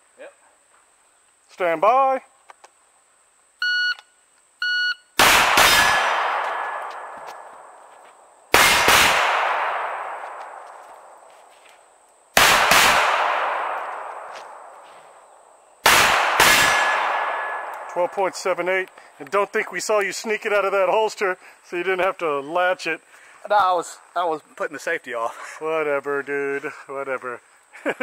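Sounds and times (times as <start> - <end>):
shot timer beeps: 3.6 - 5.1
pistol shots echoing: 5.2 - 7.8, 8.5 - 10.8, 12.4 - 14.8, 15.8 - 18.6.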